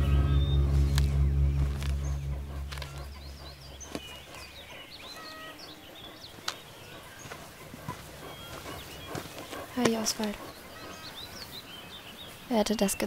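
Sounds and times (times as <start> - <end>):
low music tone: 0.0 - 4.2
songbirds chirping: 0.0 - 13.0.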